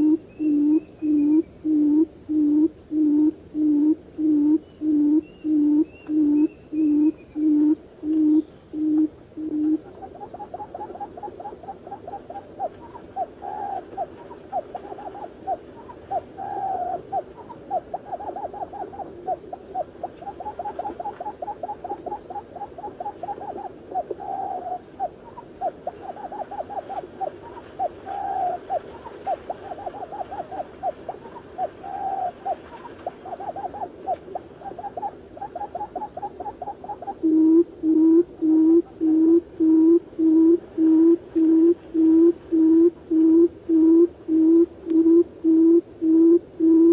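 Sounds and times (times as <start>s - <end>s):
quail calling: 0.0s - 46.9s.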